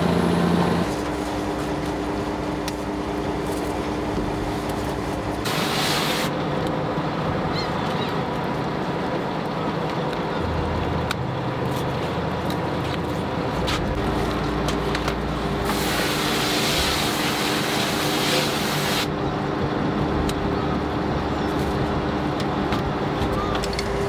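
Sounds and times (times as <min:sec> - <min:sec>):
boat engine running: 0:00.0 - 0:24.0
loud hissing rush: 0:04.3 - 0:06.4, 0:15.6 - 0:19.1.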